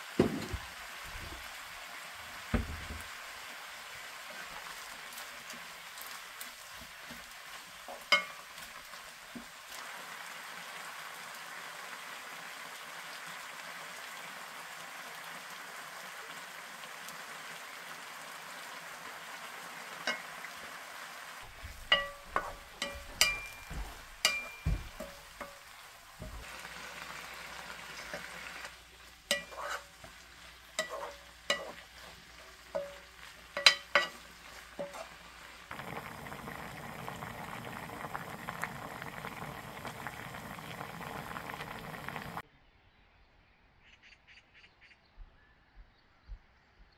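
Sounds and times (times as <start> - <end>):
food sizzling in a pan: 0.0 - 42.4
wooden spatula knocking on pan: 0.2 - 0.7, 2.5 - 3.1, 21.5 - 26.4, 32.8 - 33.0.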